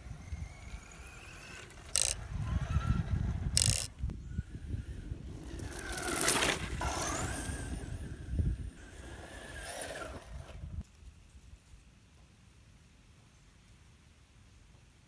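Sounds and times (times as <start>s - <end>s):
electric motor whining: 0.0s - 4.0s.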